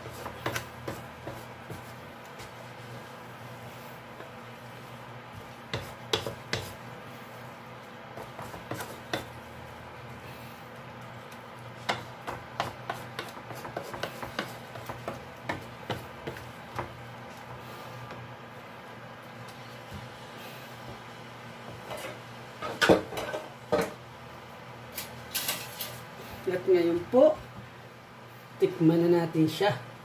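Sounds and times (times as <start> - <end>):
steady low hum: 0.0 - 29.0
wooden spatula scraping metal pan: 8.2 - 9.4, 11.8 - 16.5.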